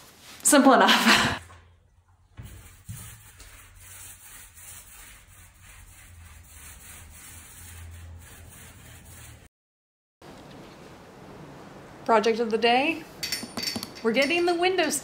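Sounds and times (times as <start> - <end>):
paintbrush strokes: 2.3 - 9.5.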